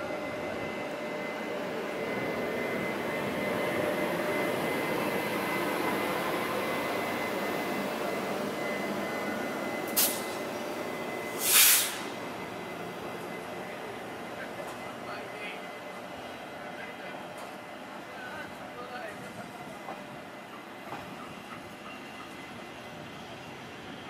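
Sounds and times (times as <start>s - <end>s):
electric locomotive motors whirring: 0.0s - 24.0s
short sharp hisses: 10.0s - 10.4s, 11.3s - 12.1s.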